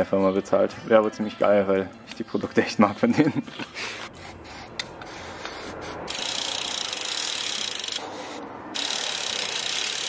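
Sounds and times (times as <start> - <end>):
bicycle freehub ratcheting: 4.8 - 10.0.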